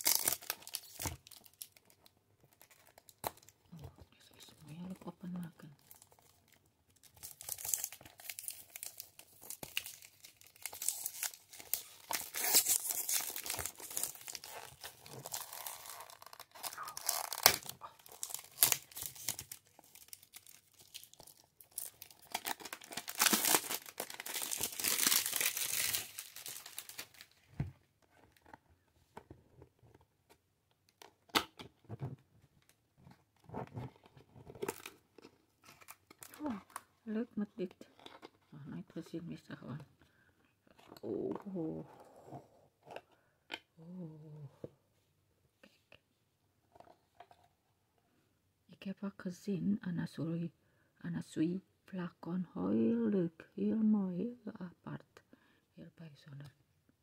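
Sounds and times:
cellophane tearing and crinkling: 0.0 - 3.5, 5.8 - 27.4, 34.6 - 36.8.

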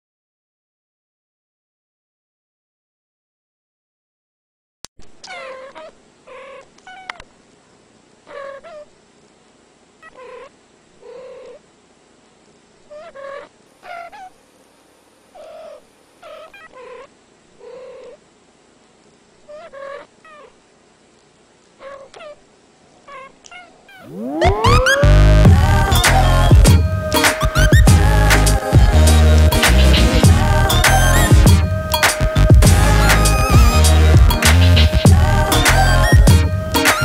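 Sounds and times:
cats meowing: 5.2 - 7.3, 23.0 - 26.1.

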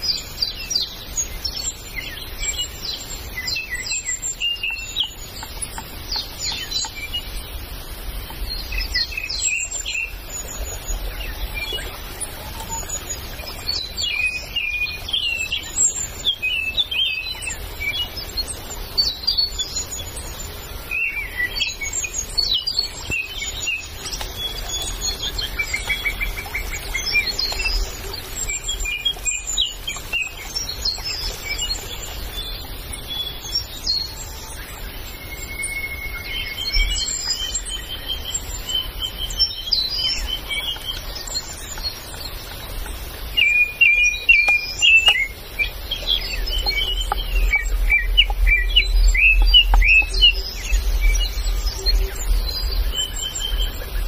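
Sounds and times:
bird trill: 0.0 - 54.0
forest birds chirping: 0.0 - 54.0.

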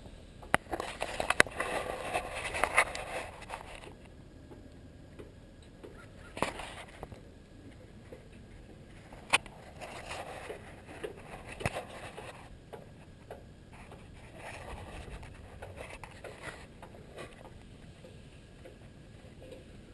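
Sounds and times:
clicks knocks and scrapes: 0.5 - 4.1, 8.1 - 19.7.

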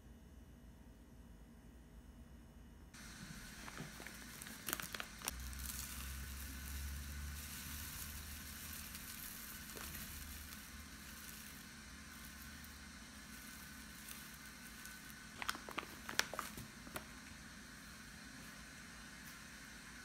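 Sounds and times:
tea leaves rustling into strainer: 3.0 - 18.6
foil bag crinkling: 3.1 - 17.2.

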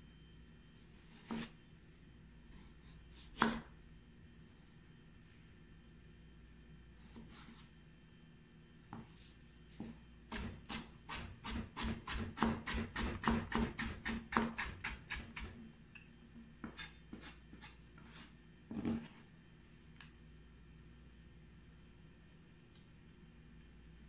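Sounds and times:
knife chopping on plastic board: 1.2 - 1.5, 3.4 - 3.7, 10.3 - 15.6.

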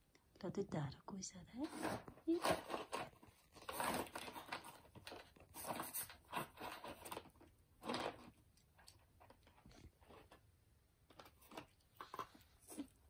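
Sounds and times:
dog scraping cardboard box: 1.6 - 7.2.

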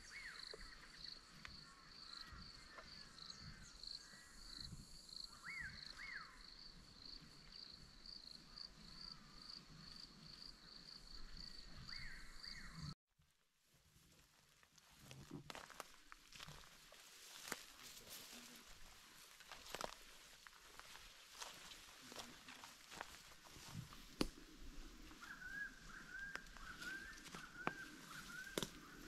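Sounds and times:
faint insect chirping: 0.0 - 12.9.

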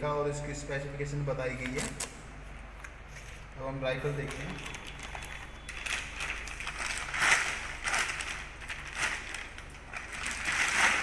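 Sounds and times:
plastic wrapping crinkling: 4.1 - 11.0.

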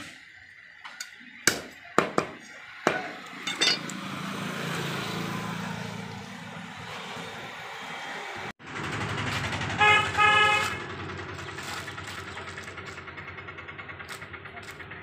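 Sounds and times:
vehicle engine running: 3.2 - 15.0
vehicle horn honking: 9.7 - 11.0.

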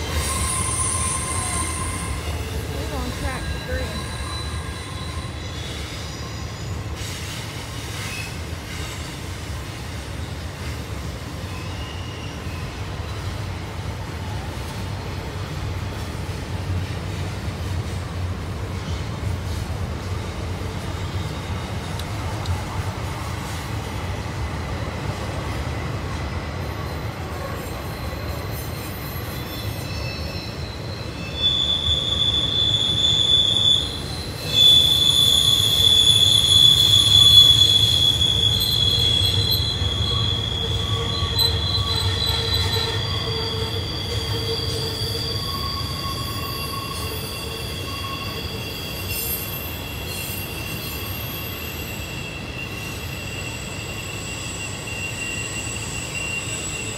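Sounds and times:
high wheel squeal: 0.0 - 10.7, 11.3 - 13.2, 26.0 - 56.9
freight train rumbling past: 0.0 - 56.9.

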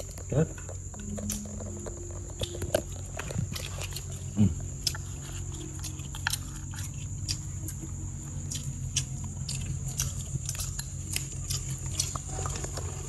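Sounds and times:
low hum: 0.0 - 13.0
thin high whine: 0.9 - 8.4.

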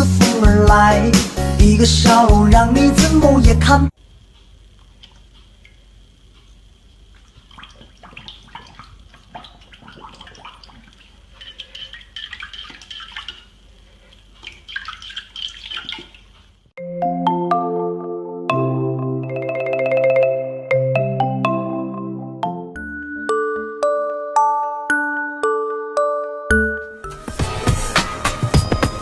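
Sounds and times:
puppy lapping water: 7.2 - 16.5.

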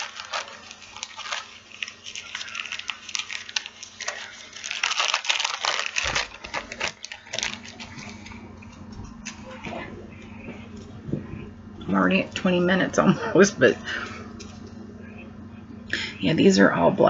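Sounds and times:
plastic bags crinkling: 0.0 - 11.0.

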